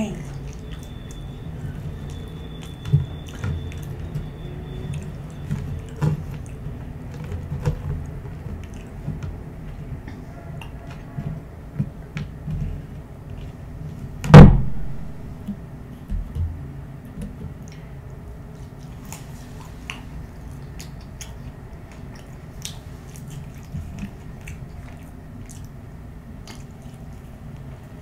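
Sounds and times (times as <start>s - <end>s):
chewing french fries: 0.1s - 14.1s, 17.2s - 28.0s
loud thump: 14.3s - 15.2s.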